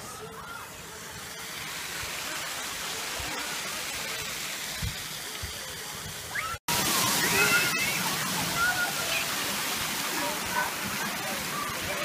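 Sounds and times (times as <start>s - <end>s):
splashing water rushing: 0.0s - 12.0s.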